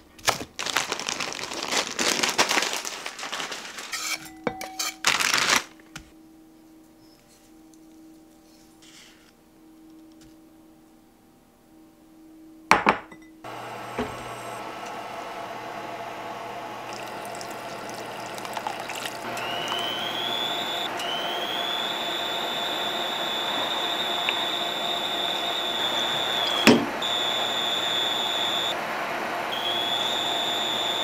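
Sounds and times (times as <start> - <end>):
thin high whine: 13.5 - 31.0.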